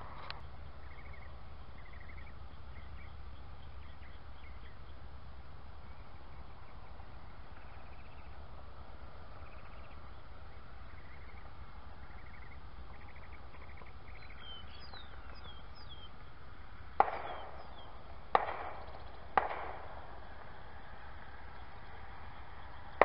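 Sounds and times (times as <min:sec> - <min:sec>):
steady low rumble: 0:00.0 - 0:23.0
faint bird chirps: 0:00.3 - 0:05.1, 0:05.8 - 0:08.4, 0:09.3 - 0:16.3, 0:18.7 - 0:19.3
sharp bangs with ringing tail: 0:17.0 - 0:20.6.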